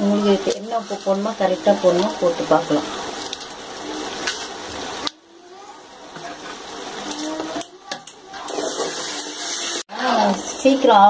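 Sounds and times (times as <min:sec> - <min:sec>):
steady frying: 0:00.0 - 0:11.0
metal ladle scraping metal pot: 0:08.4 - 0:09.8.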